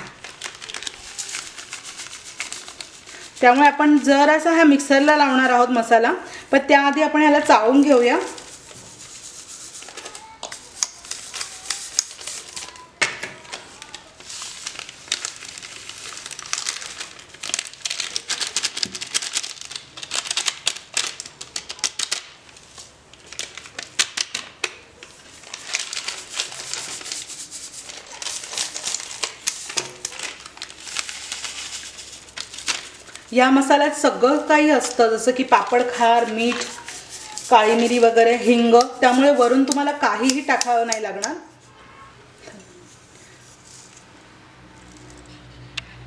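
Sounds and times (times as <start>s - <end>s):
plastic packet crinkling: 0.0s - 3.7s, 8.1s - 41.3s.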